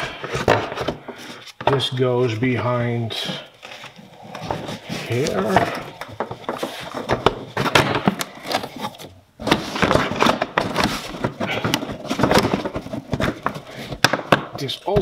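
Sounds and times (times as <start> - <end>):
plastic scraping and clicking: 3.6 - 15.0.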